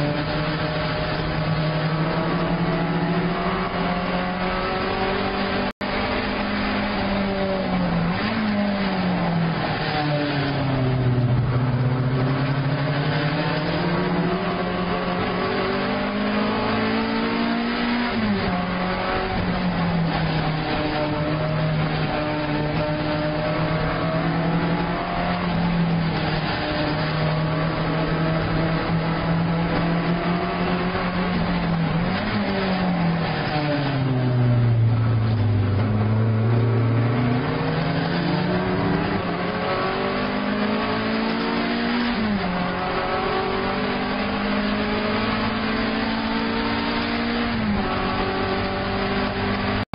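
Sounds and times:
racing car engine from inside: 0:00.0 - 0:49.9.

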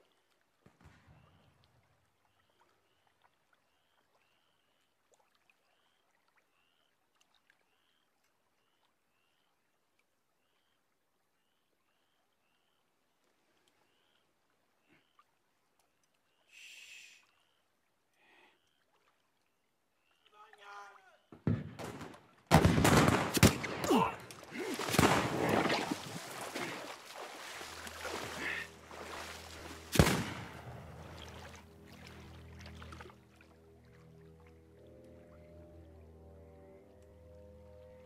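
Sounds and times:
soft slosh of water: 0:00.0 - 0:11.0, 0:17.2 - 0:20.3, 0:24.0 - 0:35.0.

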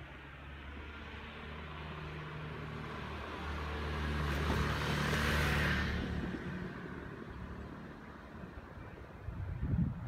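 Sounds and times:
motor scooter passing by: 0:00.5 - 0:08.1.

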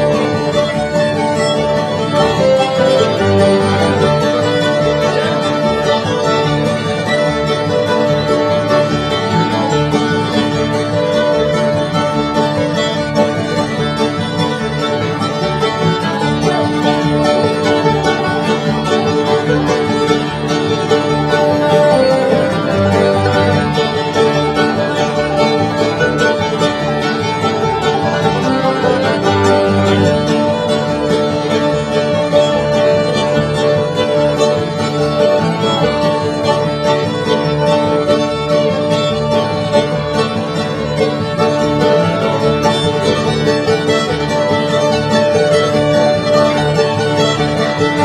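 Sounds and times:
fast plucked string music: 0:00.0 - 0:48.0.

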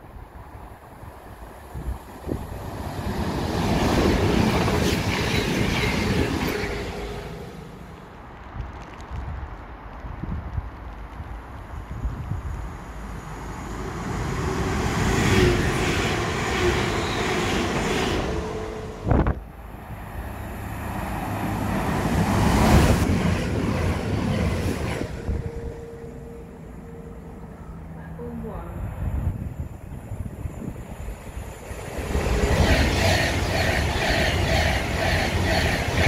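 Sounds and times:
train passing: 0:00.0 - 0:36.0
wind buffeting microphone: 0:00.1 - 0:06.6, 0:08.2 - 0:13.4, 0:19.0 - 0:19.6, 0:21.5 - 0:25.9, 0:28.5 - 0:36.0.

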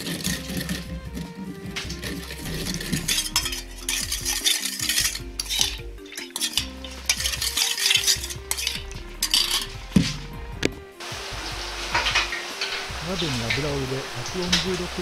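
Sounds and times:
metal spoon scraping steel bowl: 0:00.0 - 0:10.7.

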